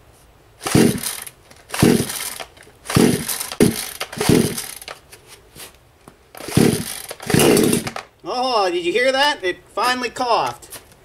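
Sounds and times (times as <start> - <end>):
chainsaw recoil starter pulls: 0.6 - 5.0, 6.3 - 8.1.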